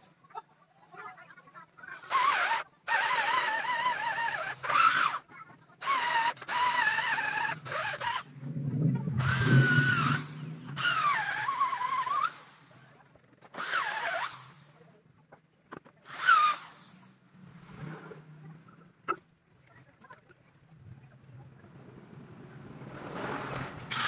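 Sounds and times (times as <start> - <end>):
electric drill boring into wood: 2.0 - 5.2, 5.8 - 8.3, 9.2 - 12.8, 13.6 - 14.8, 16.1 - 17.0.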